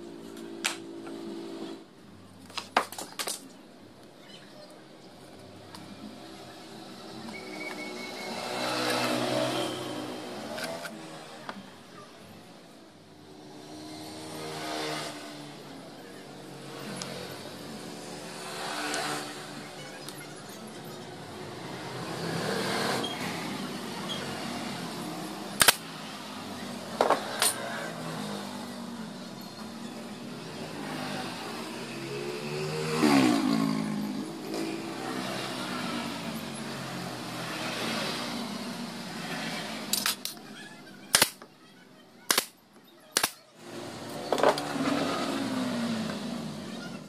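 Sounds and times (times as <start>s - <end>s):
vehicle passing by: 6.1s - 11.4s, 13.3s - 20.0s, 30.2s - 40.0s, 43.6s - 47.0s.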